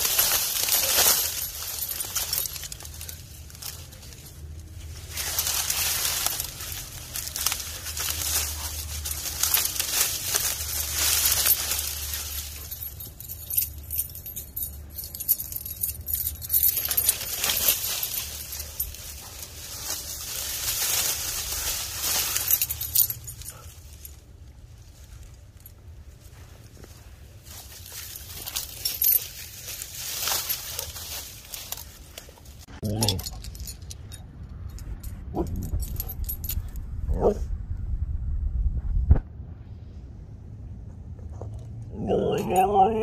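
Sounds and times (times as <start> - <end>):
dry fronds rustling and crackling: 0.0 - 33.7.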